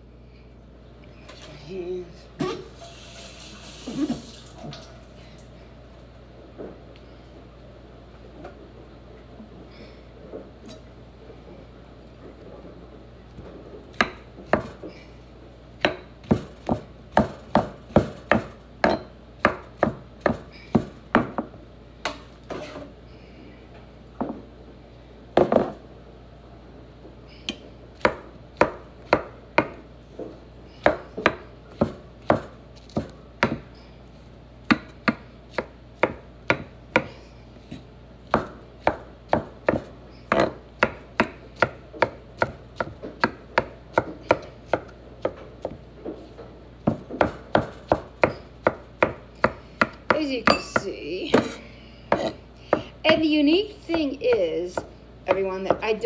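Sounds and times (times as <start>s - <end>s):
knife chopping on wooden board: 15.8s - 21.5s, 30.8s - 33.7s, 34.7s - 37.2s, 38.3s - 45.8s, 46.8s - 53.3s.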